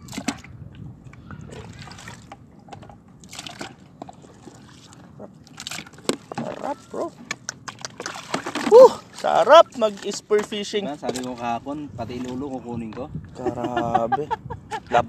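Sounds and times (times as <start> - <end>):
water sloshing and dripping: 0.0 - 13.4.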